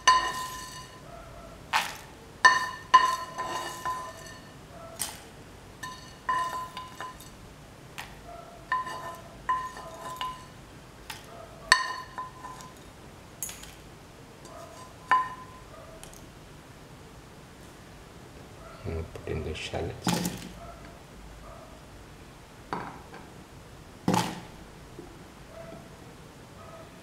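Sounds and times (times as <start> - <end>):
spoon clinking against metal pan: 0.0 - 1.0, 2.4 - 5.2, 5.8 - 7.4, 8.6 - 12.8, 14.4 - 15.7.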